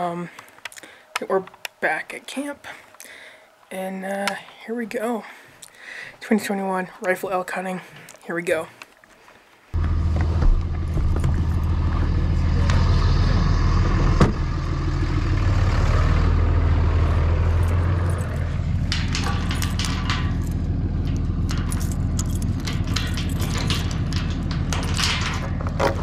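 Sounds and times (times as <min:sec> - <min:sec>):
truck door shutting: 0:09.8 - 0:13.1, 0:13.7 - 0:14.7
vehicle engine idling: 0:09.8 - 0:26.0
chain and padlock rattling: 0:17.5 - 0:26.0
keys jangling: 0:17.6 - 0:26.0.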